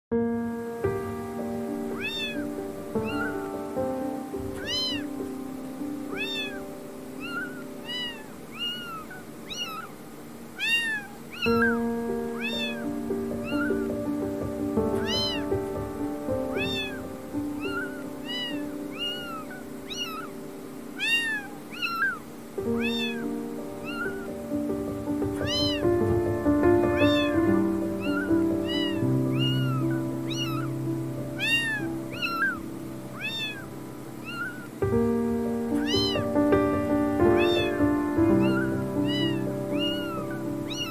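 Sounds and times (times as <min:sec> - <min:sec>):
kittens mewing: 0:01.9 - 0:03.5, 0:04.4 - 0:05.3, 0:06.0 - 0:20.4, 0:21.0 - 0:34.8, 0:35.7 - 0:40.9
background music: 0:11.6 - 0:21.0, 0:22.5 - 0:33.2, 0:33.8 - 0:40.9.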